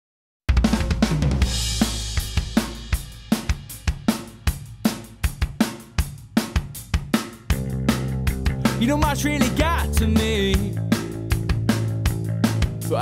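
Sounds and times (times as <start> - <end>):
rock drum beat: 0.5 - 13.0
cymbal crash: 1.4 - 5.2.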